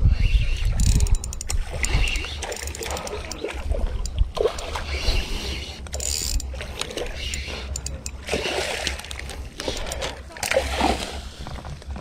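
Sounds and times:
wind rumble on microphone: 0.0s - 2.4s
fishing reel clicking: 0.5s - 8.3s, 8.9s - 10.6s.

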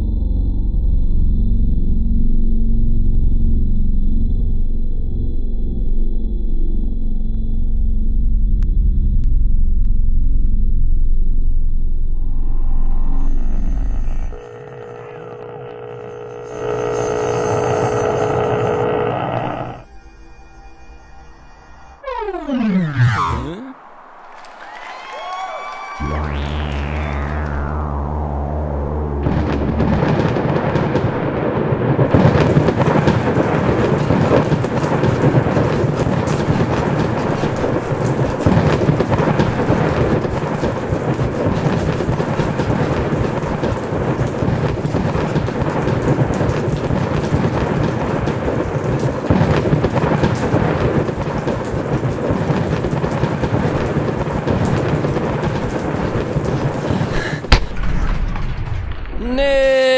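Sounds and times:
thunder rolling: 22.1s - 59.8s
heavy rain pouring: 22.6s - 58.2s.

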